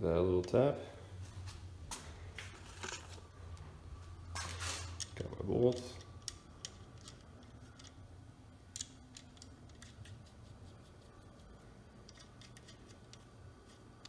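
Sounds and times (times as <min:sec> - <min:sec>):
low steady hum: 0:00.0 - 0:14.0
small metal clicks: 0:04.8 - 0:08.0, 0:08.7 - 0:10.2.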